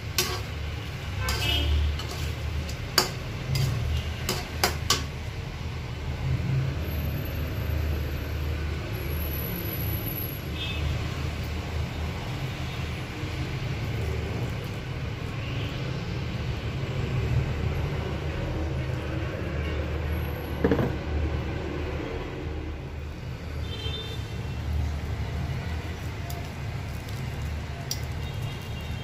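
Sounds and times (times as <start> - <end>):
shrimp frying: 0.0 - 6.2, 10.9 - 19.2, 24.3 - 29.0
metal spatula clicking on wok: 0.1 - 0.6, 1.2 - 5.2.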